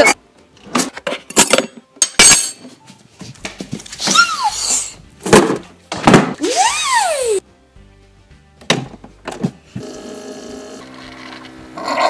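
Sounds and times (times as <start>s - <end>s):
refrigerator knocks and clunks: 5.2s - 6.4s, 8.6s - 9.6s.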